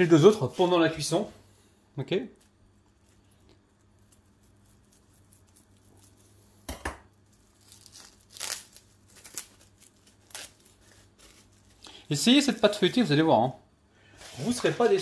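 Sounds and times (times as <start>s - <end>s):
plastic wrapping tearing and crinkling: 2.4s - 13.2s.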